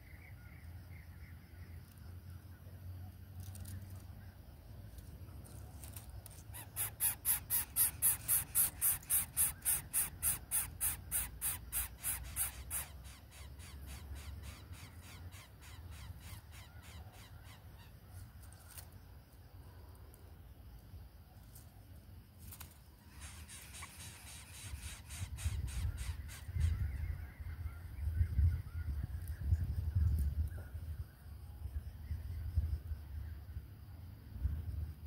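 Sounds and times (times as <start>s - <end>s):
bird chick begging rasps: 6.5s - 17.9s, 23.1s - 26.9s.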